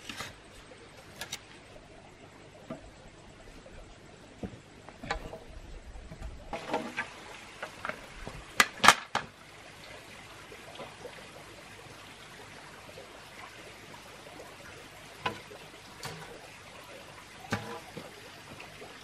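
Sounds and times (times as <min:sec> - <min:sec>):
steady background hiss: 0:00.0 - 0:19.0
bamboo poles knocking: 0:17.5 - 0:18.7.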